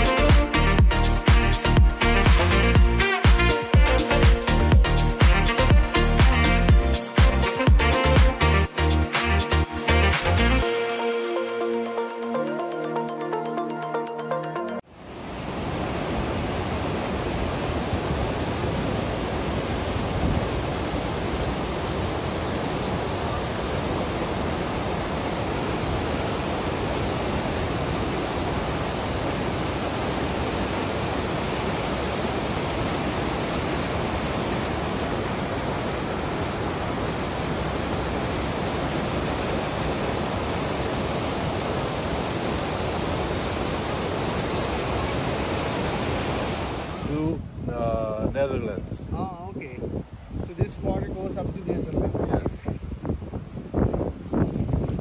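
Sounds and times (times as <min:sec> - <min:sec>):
waterfall roaring: 0:14.9 - 0:47.4.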